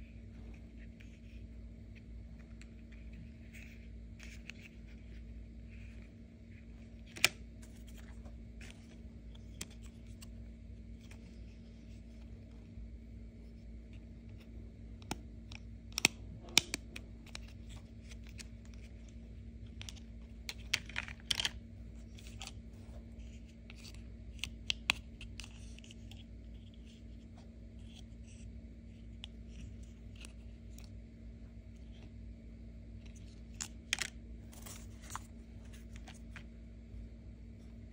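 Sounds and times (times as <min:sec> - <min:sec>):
faint steady hum: 0:00.0 - 0:37.9.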